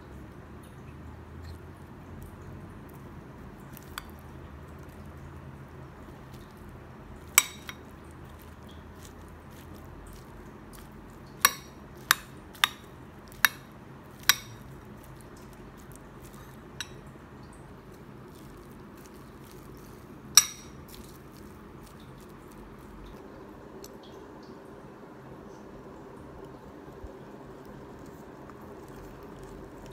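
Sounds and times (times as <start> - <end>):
spoon clinking on ceramic bowl: 7.3 - 7.9, 11.4 - 14.7, 16.2 - 17.1, 20.3 - 21.1.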